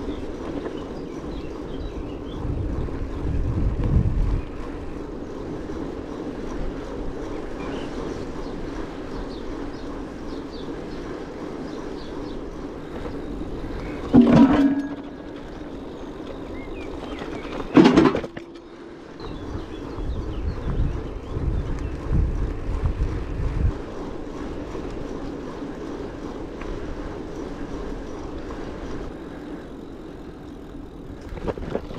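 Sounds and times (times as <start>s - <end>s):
bicycle rolling: 0.0s - 31.9s
wind buffeting microphone: 0.0s - 31.9s
sharp knocks of bike jolting: 14.1s - 15.2s, 17.6s - 18.5s.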